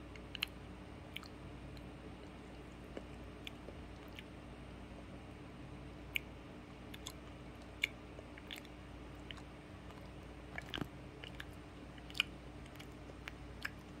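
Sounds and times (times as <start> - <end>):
dog gnawing: 8.4 - 14.0.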